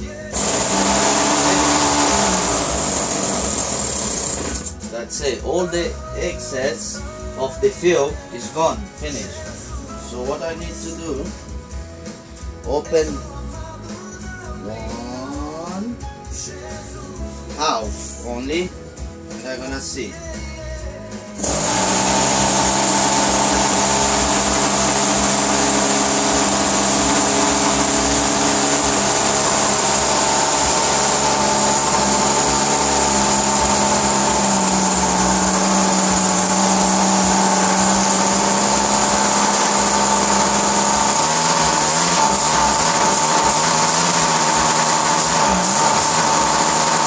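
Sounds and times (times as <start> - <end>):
model aircraft engine running: 0.4 - 4.7, 21.4 - 47.0.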